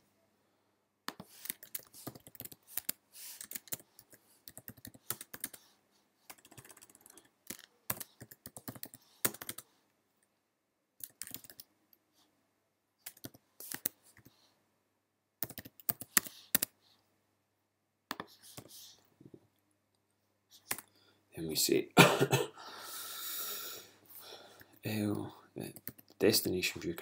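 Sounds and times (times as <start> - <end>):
computer keyboard typing: 1.1 - 5.6, 6.3 - 9.7, 11.0 - 11.7, 13.0 - 14.3, 15.4 - 16.8, 25.7 - 26.2.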